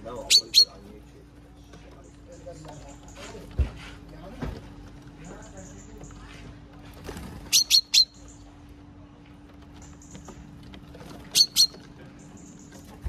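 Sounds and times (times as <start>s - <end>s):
songbirds sharp high calls: 0.0s - 3.4s, 7.4s - 8.8s, 11.2s - 13.0s
steady low hum: 0.0s - 13.0s.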